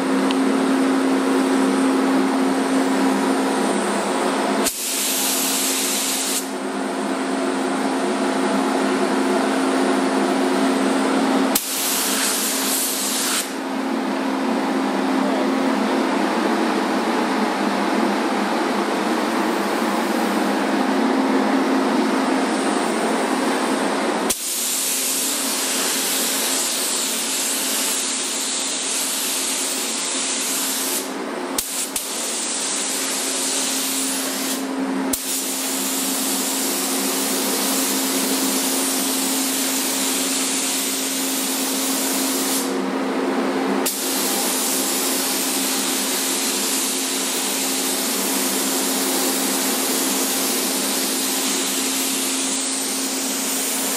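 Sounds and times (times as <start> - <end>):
spray gun hissing: 4.6 - 6.5, 11.5 - 13.6, 24.3 - 38.9, 39.5 - 42.7, 43.9 - 53.9.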